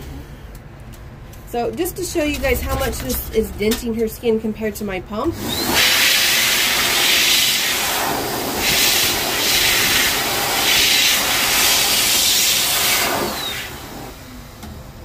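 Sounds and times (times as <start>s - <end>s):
grooming blower air rush: 5.2s - 15.0s
blower motor whine: 5.3s - 15.0s.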